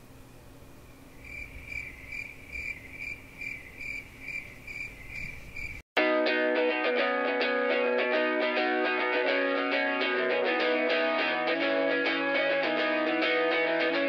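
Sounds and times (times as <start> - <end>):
cricket chirping: 1.2 - 5.8
loud electric guitar music: 6.0 - 14.0.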